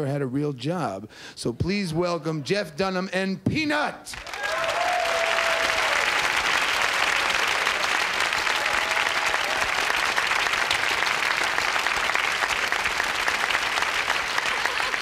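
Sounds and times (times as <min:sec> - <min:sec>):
audience applauding: 0:04.1 - 0:15.0.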